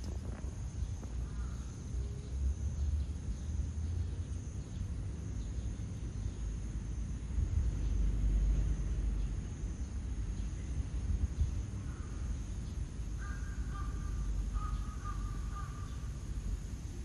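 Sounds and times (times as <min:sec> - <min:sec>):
steady low rumble: 0:06.2 - 0:17.0
crow cawing: 0:13.2 - 0:16.0.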